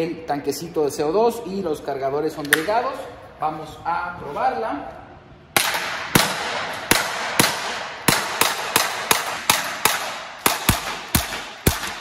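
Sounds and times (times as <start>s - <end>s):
airsoft pistol shots echoing: 5.6s - 12.0s.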